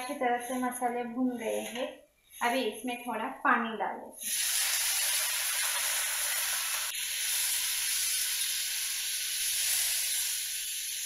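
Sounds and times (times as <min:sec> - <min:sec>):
water sizzling in hot oil: 0:04.2 - 0:11.0.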